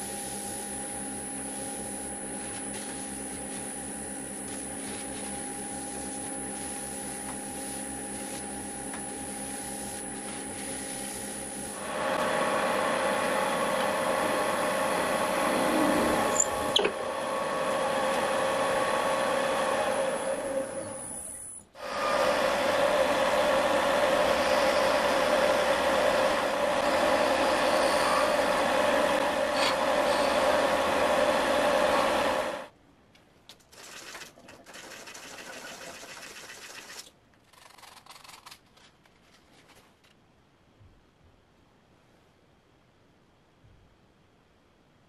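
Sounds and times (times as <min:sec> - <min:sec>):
wood lathe motor hum: 0:00.0 - 0:21.2, 0:21.8 - 0:32.7
chisel cutting spinning wood: 0:21.9 - 0:32.6.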